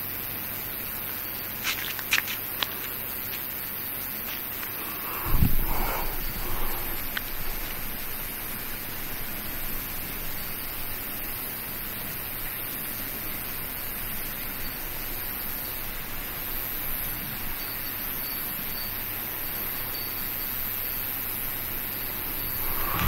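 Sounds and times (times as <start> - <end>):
steady background hiss: 0.0 - 23.0.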